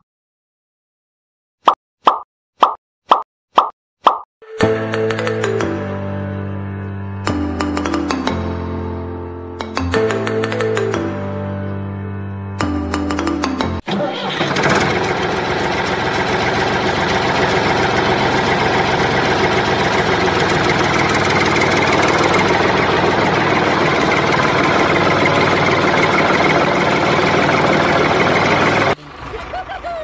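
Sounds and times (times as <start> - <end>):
diesel tractor engine idling: 13.9 - 30.0.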